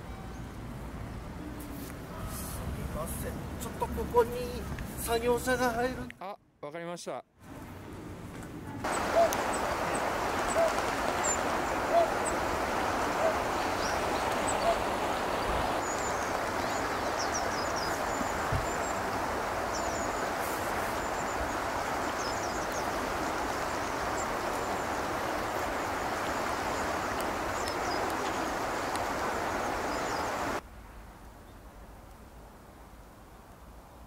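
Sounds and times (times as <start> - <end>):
river water flowing: 8.8 - 30.6.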